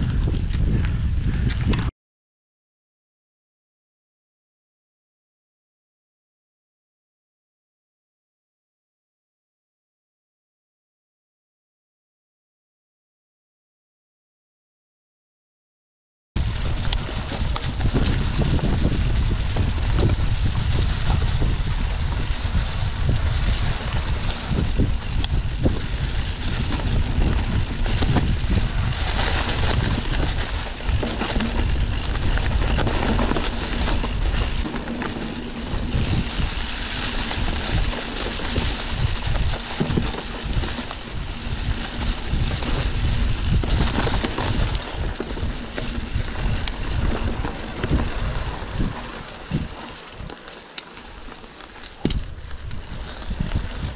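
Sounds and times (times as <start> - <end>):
wind buffeting microphone: 0.0 - 1.9, 16.4 - 50.4, 51.1 - 53.9.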